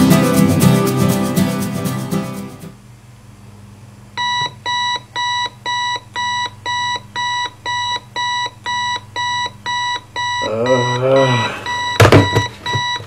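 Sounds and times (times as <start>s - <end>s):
clock radio alarm beeping: 4.2s - 13.0s.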